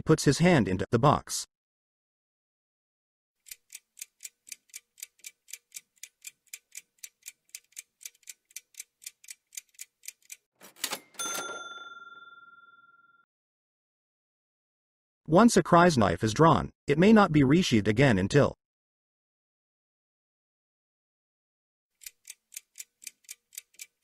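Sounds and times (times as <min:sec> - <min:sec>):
countdown clock ticking: 0:03.4 - 0:10.4, 0:22.0 - 0:24.0
bell-like chime: 0:10.9 - 0:13.2.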